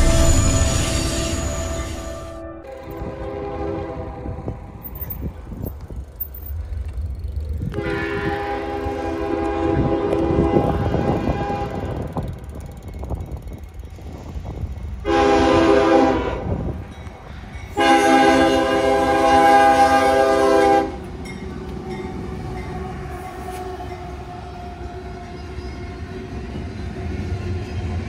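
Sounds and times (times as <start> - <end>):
locomotive air horn blasts: 0.0 - 4.8, 7.7 - 12.1, 15.0 - 16.6, 17.8 - 21.0, 22.8 - 24.5
freight cars rumbling past: 0.0 - 15.7.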